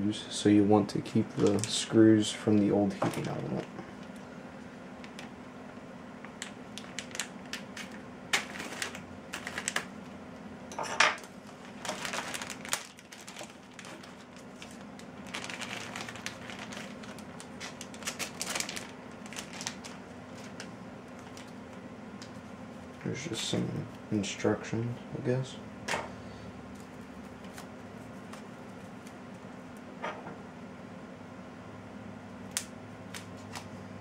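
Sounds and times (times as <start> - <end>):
packaging crinkling: 5.0 - 5.4, 6.3 - 10.1, 11.2 - 22.4, 26.7 - 29.5.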